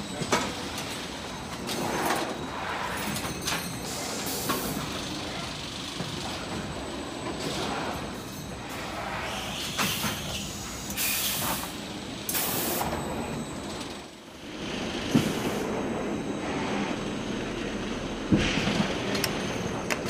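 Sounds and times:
pneumatic air hiss: 9.2 - 12.9.

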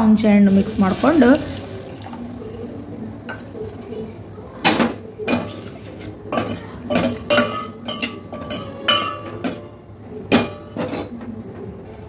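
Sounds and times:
spoon clinking in metal pot: 6.3 - 9.7.

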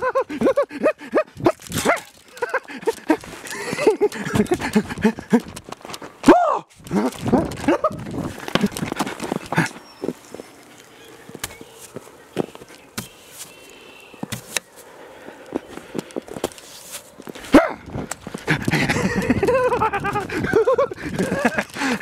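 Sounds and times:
footsteps crunching in snow: 1.4 - 22.0.

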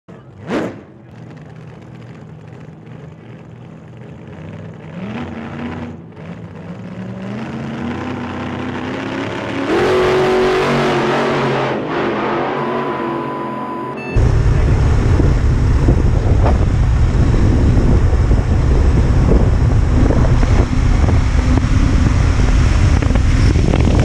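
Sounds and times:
motorcycle engine accelerating: 7.8 - 24.0.

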